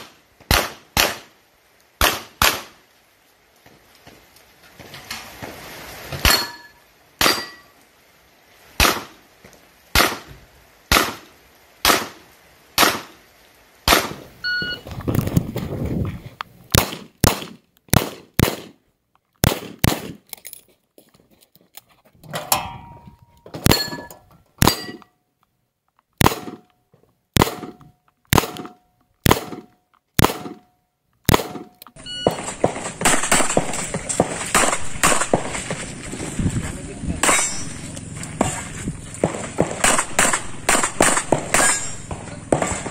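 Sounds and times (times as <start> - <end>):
steady hiss: 1.1 - 16.7
bullets ringing on steel targets: 6.2 - 7.7, 23.6 - 25.1, 37.2 - 38.0, 39.8 - 42.9
handgun shots: 31.3 - 35.6, 39.2 - 42.9.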